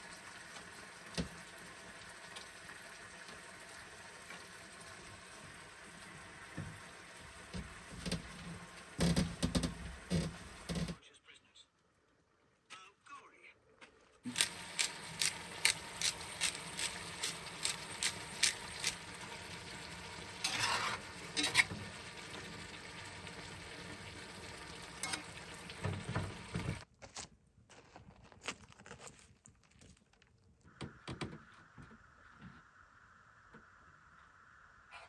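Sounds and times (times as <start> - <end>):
utensil clicks and scrapes: 14.3 - 19.0
food sizzling in a frying pan: 14.3 - 26.8.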